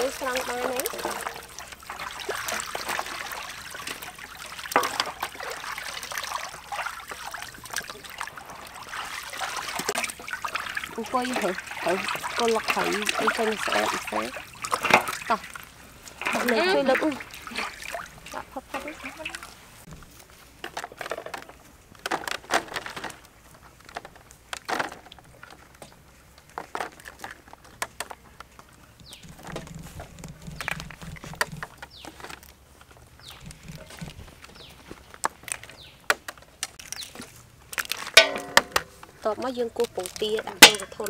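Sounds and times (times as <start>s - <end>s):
clicks and light knocks: 18.7s - 41.0s.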